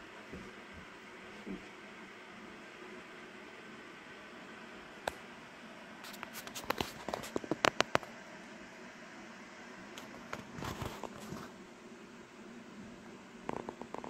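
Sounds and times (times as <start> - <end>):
handling clicks and crackles: 6.2 - 8.1.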